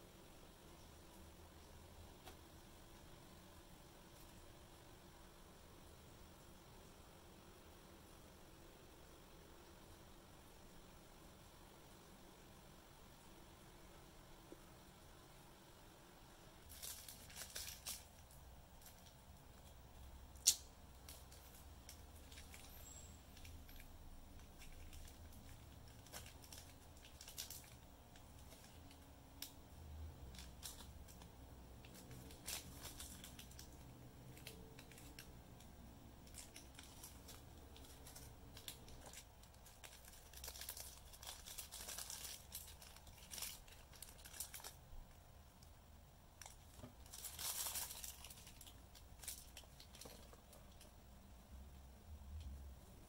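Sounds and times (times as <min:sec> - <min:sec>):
paper wrapping rustling: 0:16.6 - 0:19.8, 0:21.0 - 0:29.0, 0:30.2 - 0:35.3, 0:36.2 - 0:44.8, 0:46.4 - 0:50.9
plastic bag crinkling: 0:16.6 - 0:19.8, 0:20.4 - 0:29.6, 0:30.2 - 0:44.9, 0:46.3 - 0:51.0.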